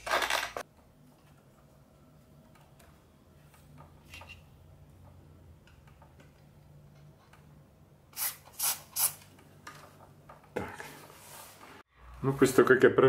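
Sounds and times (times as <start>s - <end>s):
aerosol can spraying: 8.1s - 9.3s.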